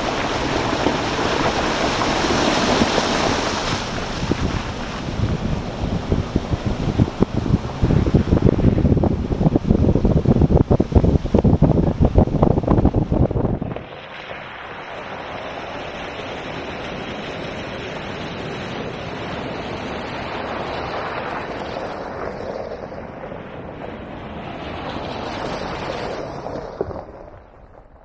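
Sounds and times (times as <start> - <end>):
tyres splashing through water: 0.0 - 8.8, 13.6 - 23.0.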